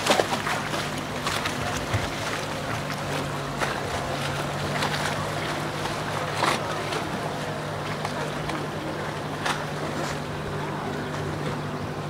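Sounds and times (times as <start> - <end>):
outboard engine humming: 0.0 - 12.0.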